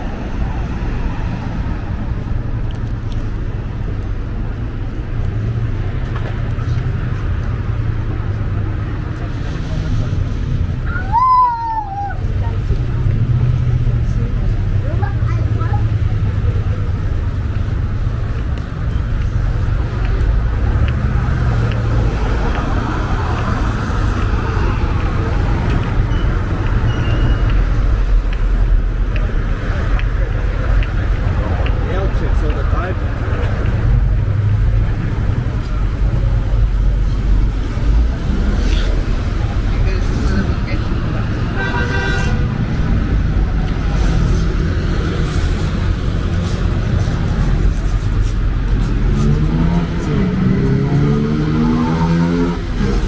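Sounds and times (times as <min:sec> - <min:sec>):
rumble of passing cars: 0:00.0 - 0:53.0
brief high squeaks: 0:26.9 - 0:27.5.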